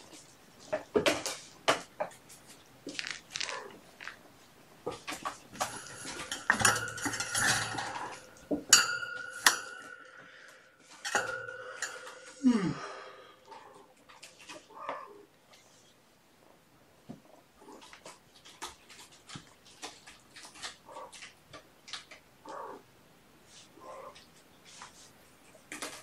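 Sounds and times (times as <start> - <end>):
metal dish clattering and ringing: 5.6 - 10.2, 11.0 - 12.4.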